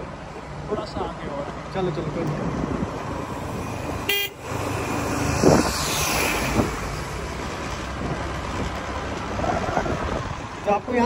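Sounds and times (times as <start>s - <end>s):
road rumble: 0.0s - 11.0s
wind noise: 2.3s - 10.9s.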